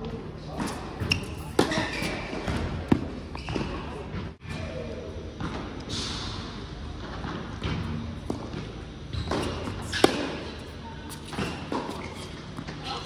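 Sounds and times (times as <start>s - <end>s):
racket striking tennis ball: 9.2s - 10.5s.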